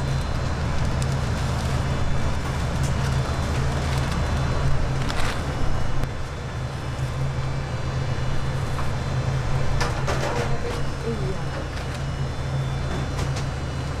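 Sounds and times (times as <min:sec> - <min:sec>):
low hum of machinery: 0:00.0 - 0:14.0
paper rustling: 0:00.8 - 0:05.9.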